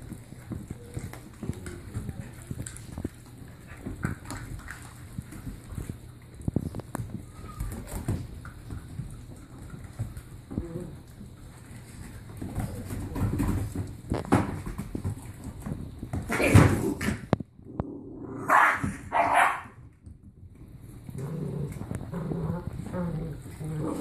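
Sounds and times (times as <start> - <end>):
paws scuffling on wooden floor: 0.0 - 17.2
puppies chewing: 0.0 - 17.8, 19.2 - 24.0.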